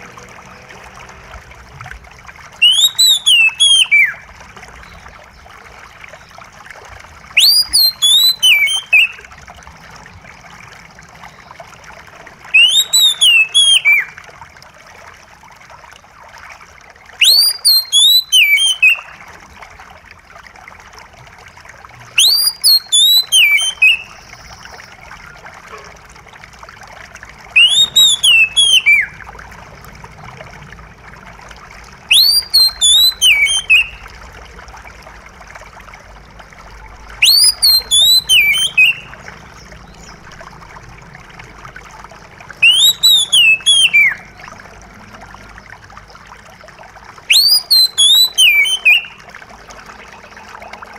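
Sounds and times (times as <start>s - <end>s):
trickle of running water: 0.0s - 50.9s
bird whistling phrase: 2.6s - 4.2s, 7.4s - 9.2s, 12.5s - 14.1s, 17.2s - 19.1s, 22.2s - 25.0s, 27.6s - 29.1s, 32.1s - 34.0s, 37.2s - 39.1s, 42.6s - 44.2s, 47.3s - 49.2s.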